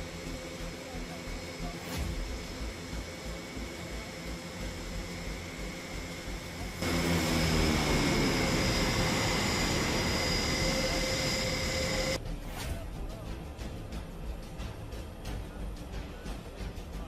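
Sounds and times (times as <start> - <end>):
turboprop engines running: 0.0 - 12.2.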